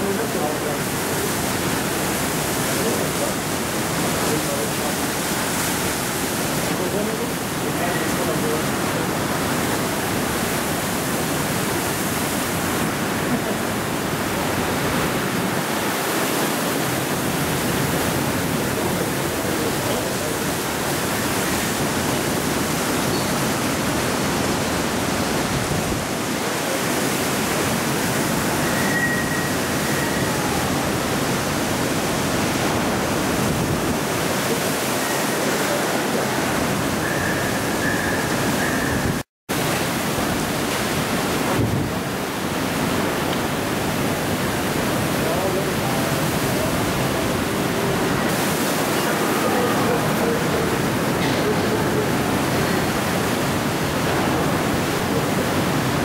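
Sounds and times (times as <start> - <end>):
heavy rain: 0.0 - 56.0
strong wind: 0.0 - 56.0.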